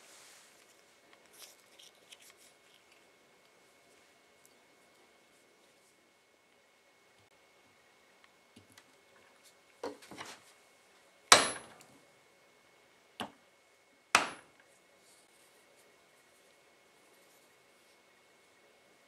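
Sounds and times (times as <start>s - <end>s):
hammer striking steel: 11.3s - 11.7s, 14.2s - 14.5s.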